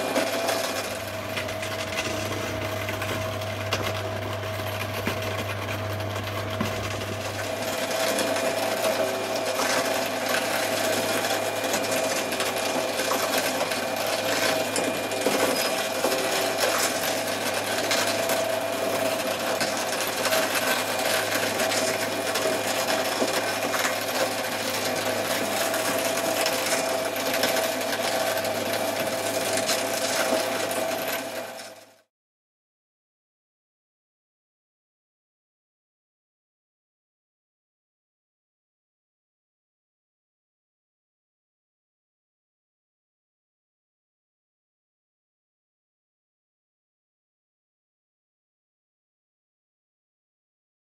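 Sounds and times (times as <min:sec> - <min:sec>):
shredder motor whine: 0:00.0 - 0:32.1.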